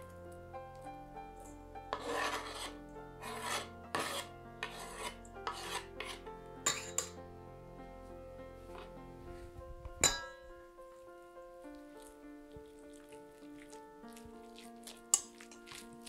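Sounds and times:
knife scraping on wooden board: 1.9s - 7.2s.

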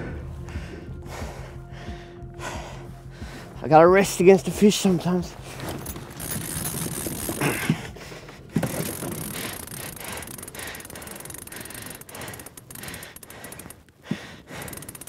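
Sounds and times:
fishing reel ratchet clicking: 5.7s - 15.0s.

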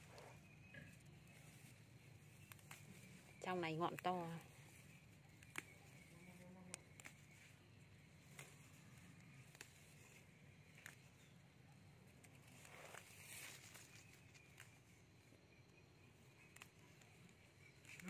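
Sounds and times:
leaves rustling: 0.0s - 15.0s, 16.0s - 18.0s
stems snapping: 1.0s - 11.4s, 12.0s - 14.9s, 16.0s - 18.0s.

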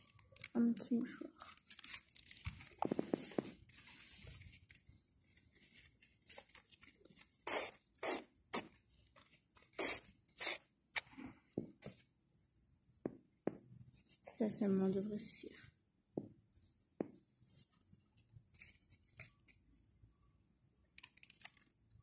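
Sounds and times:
paper tissue rustling: 1.4s - 10.6s.

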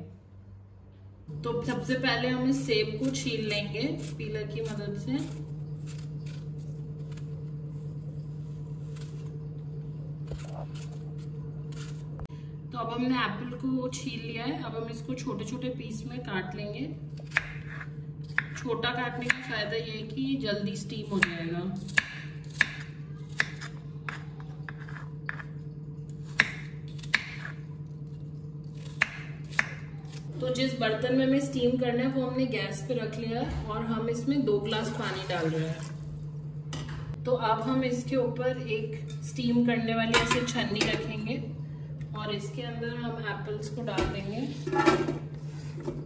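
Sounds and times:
steady low hum: 0.0s - 46.0s
knife chopping on cutting board: 17.2s - 18.6s, 21.2s - 25.4s, 26.3s - 27.5s, 28.8s - 29.8s.

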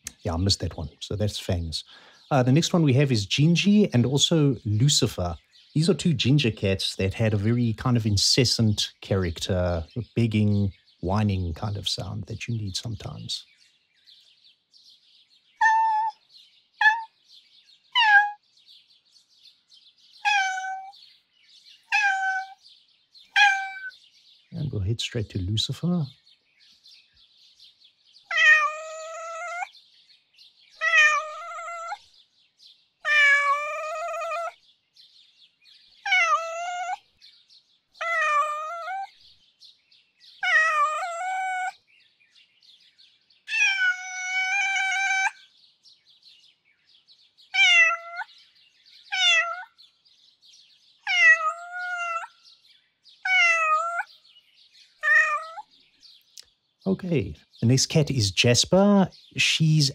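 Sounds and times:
cat meowing: 15.6s - 16.2s, 16.8s - 17.1s, 18.0s - 18.4s, 20.2s - 21.0s, 21.9s - 22.6s, 23.3s - 24.0s, 28.3s - 29.7s, 30.8s - 32.0s, 33.0s - 34.6s, 36.0s - 37.0s, 38.0s - 39.1s, 40.4s - 41.8s, 43.5s - 45.4s, 47.5s - 48.3s, 49.1s - 49.8s, 51.0s - 52.3s, 53.2s - 54.1s, 55.0s - 55.7s.

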